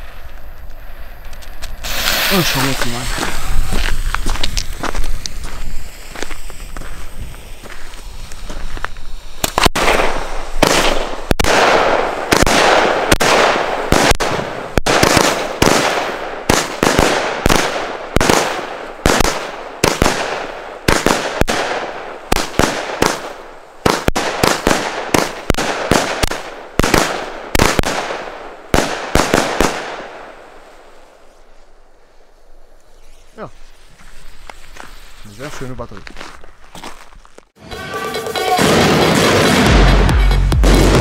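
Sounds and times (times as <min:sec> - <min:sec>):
fuse burning: 0:00.0 - 0:11.5
firework launch and burst bangs: 0:00.0 - 0:31.0, 0:38.6 - 0:41.0.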